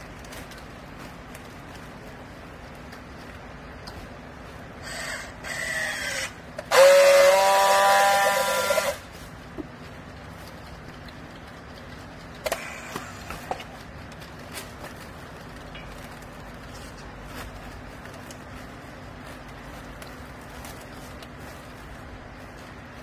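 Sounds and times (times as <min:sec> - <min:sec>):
baler power unit hum: 0:00.0 - 0:23.0.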